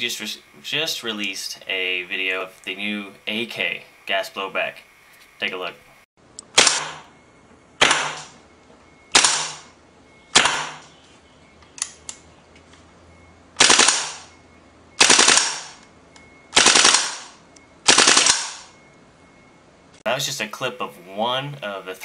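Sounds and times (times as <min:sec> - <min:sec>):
airsoft rifle firing bursts: 0:09.2 - 0:09.6, 0:13.6 - 0:14.2, 0:15.0 - 0:15.8, 0:16.6 - 0:17.3, 0:17.9 - 0:18.7.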